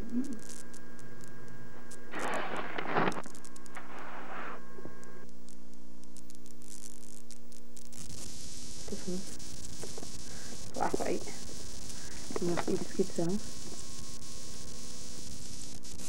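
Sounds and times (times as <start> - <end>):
electrical hum: 0.0 - 16.0
tape hiss: 0.0 - 16.0
short rushing noises: 2.1 - 4.6.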